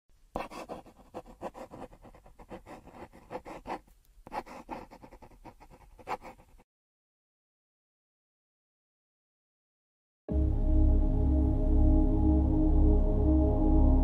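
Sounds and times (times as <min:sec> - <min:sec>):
pencil scribbling on paper: 0:00.4 - 0:06.6.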